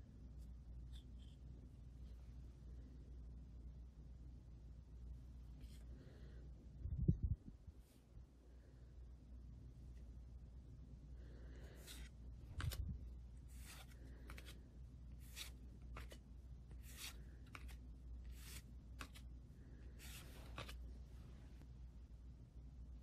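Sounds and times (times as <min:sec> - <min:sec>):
cards swishing against cards: 0:11.8 - 0:19.3, 0:19.9 - 0:20.9.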